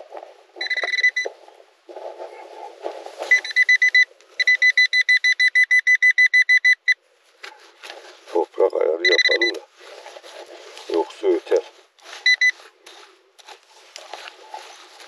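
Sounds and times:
rough scraping in soil: 0.0s - 4.5s, 7.2s - 8.9s, 9.5s - 15.0s
metal detector beeping: 0.6s - 1.3s, 3.2s - 7.0s, 9.0s - 9.7s, 12.2s - 12.6s.

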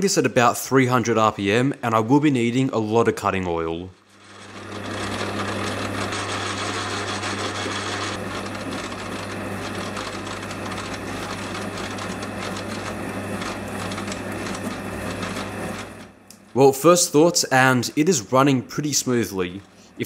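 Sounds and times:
lathe motor hum: 4.1s - 16.6s.

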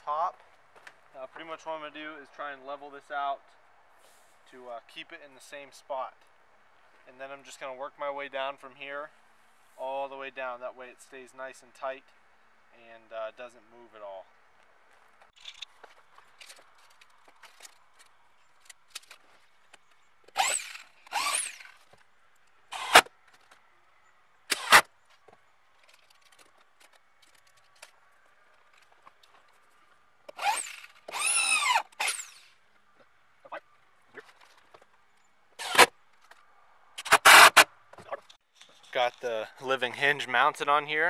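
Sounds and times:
cordless drill driving screws: 20.3s - 21.8s, 22.7s - 23.1s, 24.5s - 24.9s, 30.3s - 32.6s, 35.6s - 35.9s, 37.0s - 37.7s.

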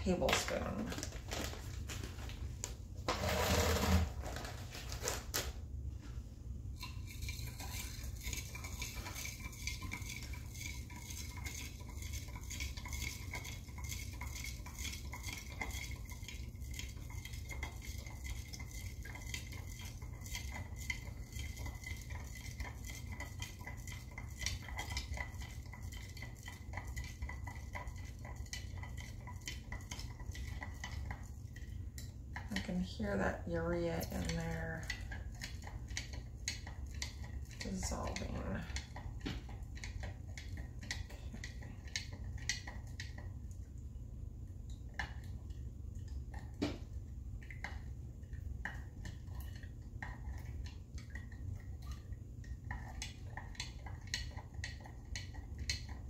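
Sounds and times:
stirrer clinking against glass jar: 6.8s - 32.9s.

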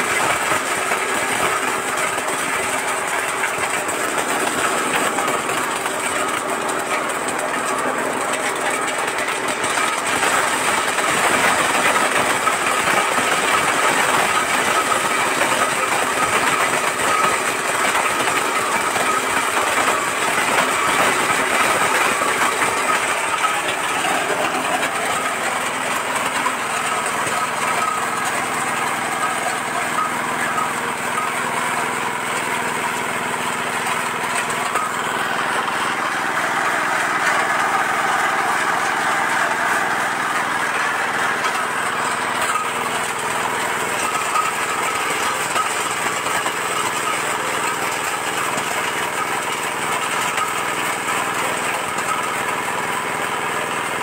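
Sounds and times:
nut cracking machine running: 0.0s - 54.0s.

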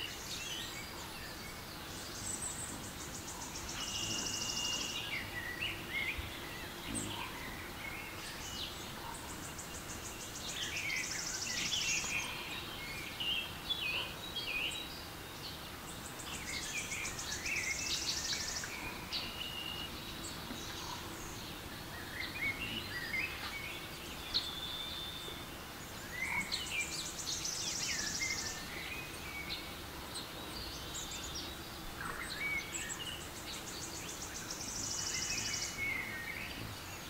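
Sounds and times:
steady background hiss: 0.0s - 37.0s.

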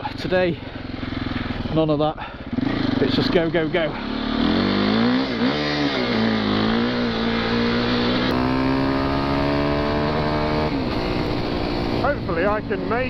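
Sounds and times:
dirt bike engine: 0.0s - 13.0s.

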